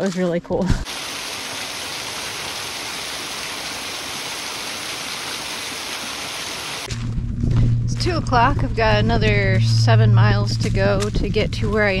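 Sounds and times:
water splashing onto rocks: 0:00.8 - 0:06.9.

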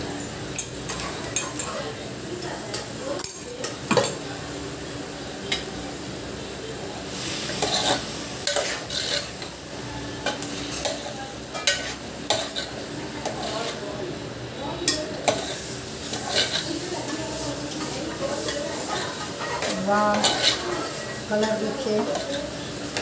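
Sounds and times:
frying sizzle: 0:00.0 - 0:23.0
spoon scraping metal pan: 0:07.5 - 0:09.5, 0:10.2 - 0:13.8, 0:14.9 - 0:23.0.

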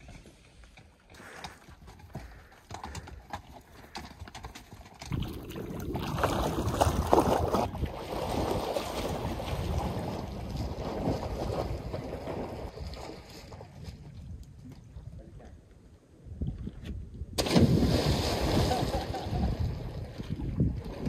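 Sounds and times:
hooves clopping on rocky trail: 0:00.0 - 0:05.4
water splashing from swimmer: 0:05.1 - 0:13.9
wind on microphone: 0:16.2 - 0:21.0.

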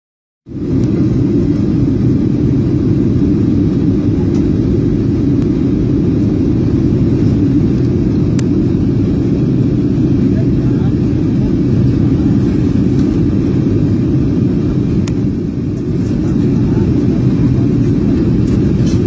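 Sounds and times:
airliner cabin rumble in flight: 0:00.5 - 0:19.0
jet engine and airflow noise: 0:00.5 - 0:19.0.

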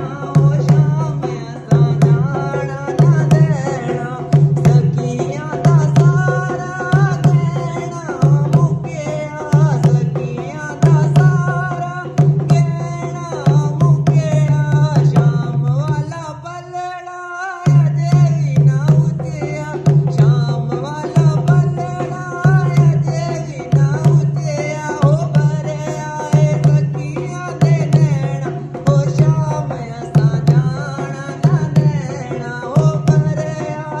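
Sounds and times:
person singing melody: 0:00.0 - 0:15.7
hand drum folk rhythm: 0:00.0 - 0:16.4, 0:17.6 - 0:34.0.

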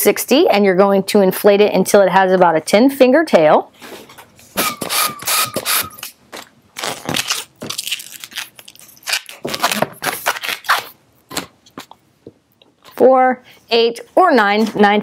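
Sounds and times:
balloon squeaking and rubbing: 0:04.6 - 0:06.0, 0:06.8 - 0:11.4
hand pump inflating balloon: 0:04.6 - 0:06.0.

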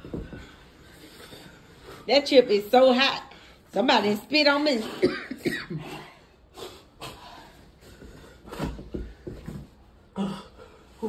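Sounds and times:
soft knocks and rustles: 0:07.9 - 0:09.9.

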